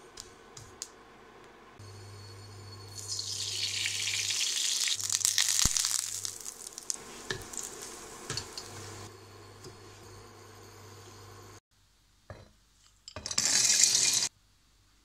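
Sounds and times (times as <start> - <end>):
ghee sizzling in frying pan: 1.9 - 9.6, 13.4 - 14.3.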